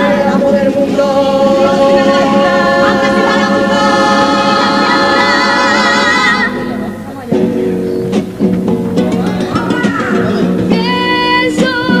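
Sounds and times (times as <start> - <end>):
mixed chorus holding a chord: 0.0 - 7.2.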